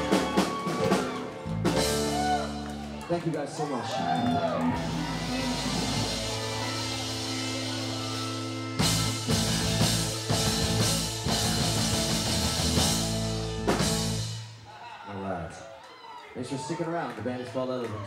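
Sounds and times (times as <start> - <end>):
electric guitar chords: 0.0 - 3.3, 4.1 - 14.6
drum and cymbal hits: 4.7 - 14.6.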